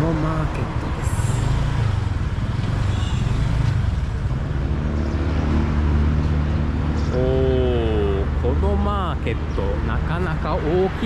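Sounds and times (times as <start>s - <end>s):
road noise: 0.0s - 11.0s
person's voice: 7.1s - 11.0s.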